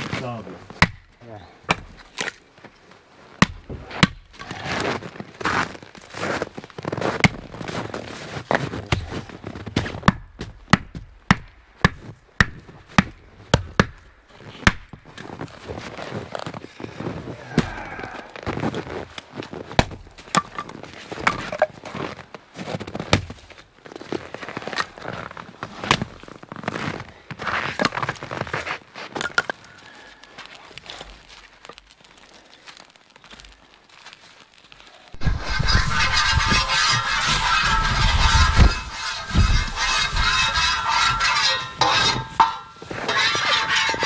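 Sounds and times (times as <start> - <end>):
axe chopping firewood: 0.7 - 2.4, 3.4 - 5.0, 7.1 - 7.5, 8.4 - 15.5, 17.4 - 18.1, 19.7 - 21.8, 23.0 - 23.6, 36.2 - 44.0.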